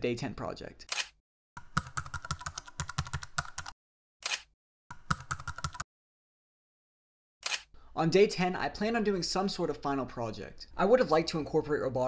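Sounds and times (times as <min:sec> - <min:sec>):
computer keyboard typing: 0:01.6 - 0:03.8, 0:04.9 - 0:05.8.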